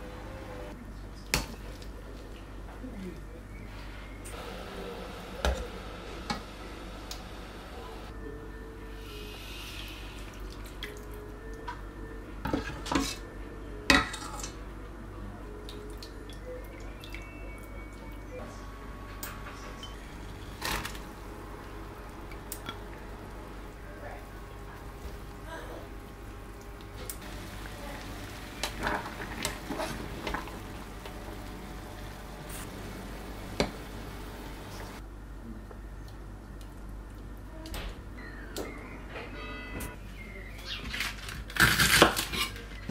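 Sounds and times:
mushrooms bubbling in hot water: 20.1s - 35.0s.

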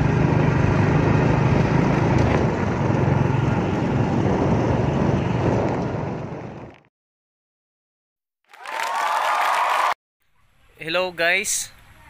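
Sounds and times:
vehicle engine running: 0.0s - 6.8s
road and wind noise: 0.0s - 6.9s.

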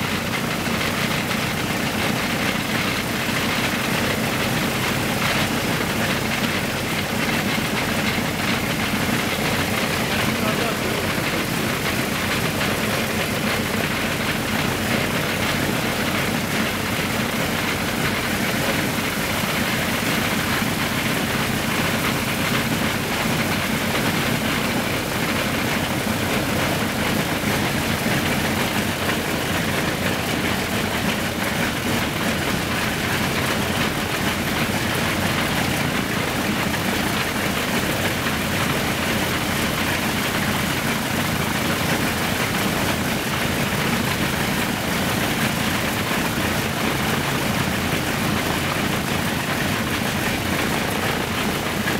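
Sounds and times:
radial piston engine running: 0.0s - 51.9s.

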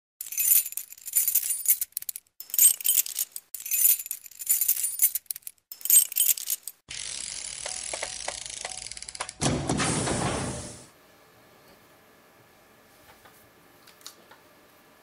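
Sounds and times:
metallic jingling and rattling: 0.2s - 6.8s.

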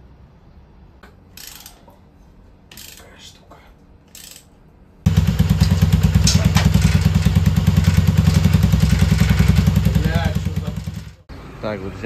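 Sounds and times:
scooter engine idling: 5.1s - 11.3s.

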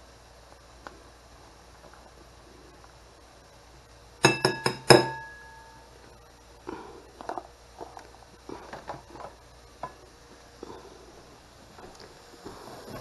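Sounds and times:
metal spoon clinking on ceramic bowl: 4.2s - 5.5s.

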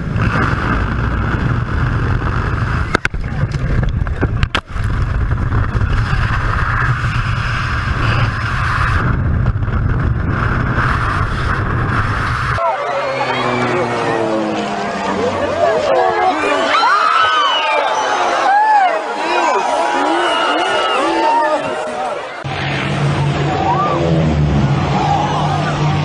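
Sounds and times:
sharp crackles: 0.0s - 12.6s
rushing air and aircraft roar: 0.0s - 16.9s, 22.4s - 26.0s.

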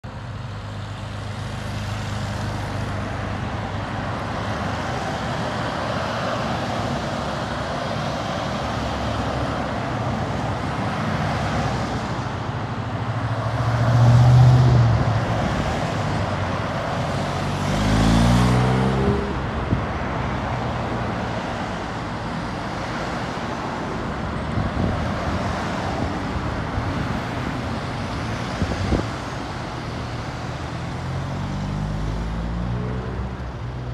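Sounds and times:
vehicles driving past: 0.0s - 33.9s
vehicle passing close: 17.0s - 19.7s.

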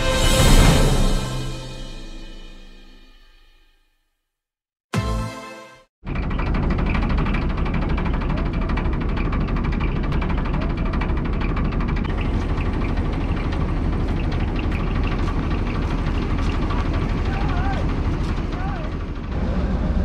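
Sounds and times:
diesel train engine idling: 6.1s - 20.0s.

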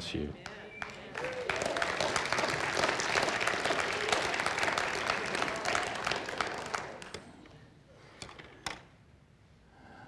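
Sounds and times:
congregation applauding: 0.4s - 7.5s.

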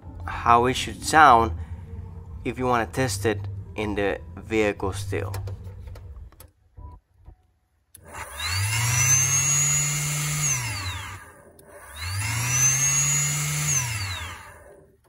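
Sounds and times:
electric blower whining: 8.0s - 15.0s.

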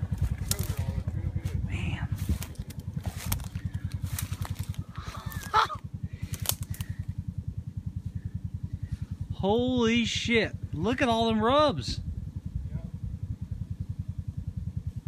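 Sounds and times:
footsteps crunching through dry grass: 0.0s - 6.9s
fast low throb: 0.0s - 15.0s
twigs cracking: 0.2s - 0.8s, 2.2s - 7.1s.

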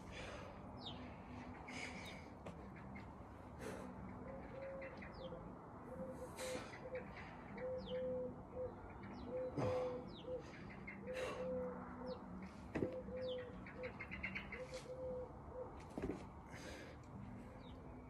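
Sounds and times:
small birds chirping: 0.1s - 15.8s
dove cooing: 4.2s - 15.8s.

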